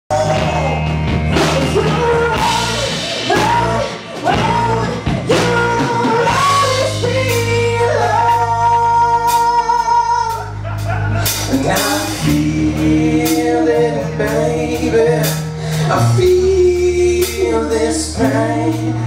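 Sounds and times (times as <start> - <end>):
woman singing: 0.1 - 10.4
drum kit: 0.1 - 19.0
electric guitar: 0.1 - 19.0.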